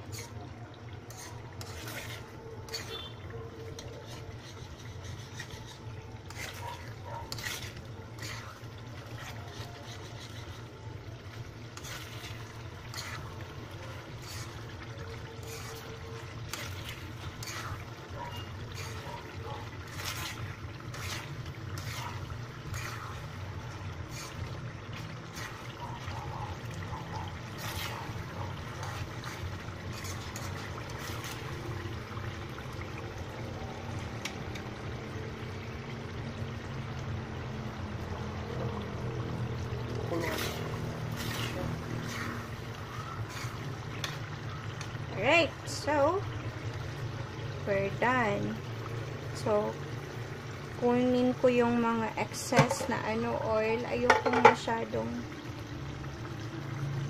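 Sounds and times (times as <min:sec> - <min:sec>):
spatula scraping pan: 0:00.0 - 0:31.6, 0:40.0 - 0:44.4, 0:52.3 - 0:53.0, 0:54.0 - 0:54.6
sauce simmering in wok: 0:00.0 - 0:57.0.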